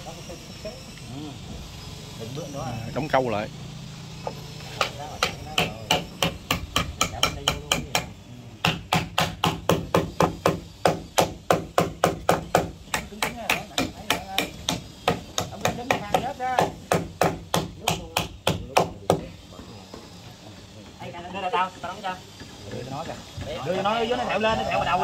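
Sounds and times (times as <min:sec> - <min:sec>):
hammer driving nails into wood: 0:04.8 - 0:19.2.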